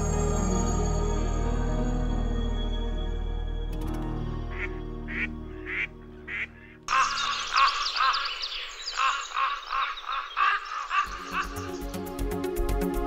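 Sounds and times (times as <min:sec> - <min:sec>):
background music: 0:00.0 - 0:13.0
ducks quacking: 0:04.5 - 0:11.7.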